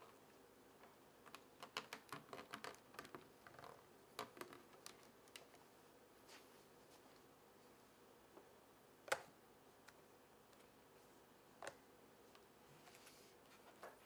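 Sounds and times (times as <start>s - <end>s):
small clicks and taps: 0.8s - 5.6s, 11.6s - 12.5s.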